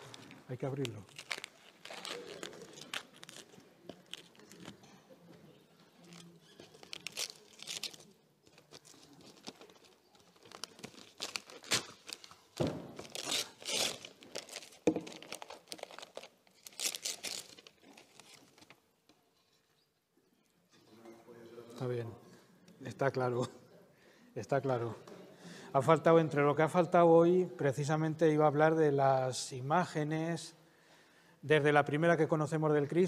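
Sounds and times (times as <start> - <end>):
wrapping paper tearing and rustling: 0.0 - 4.8, 6.0 - 18.8.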